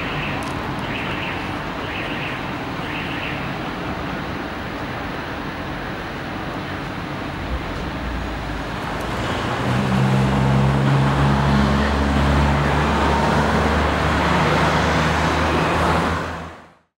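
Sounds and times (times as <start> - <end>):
street traffic noise: 0.0 - 16.9
vehicle engine running: 7.0 - 12.8.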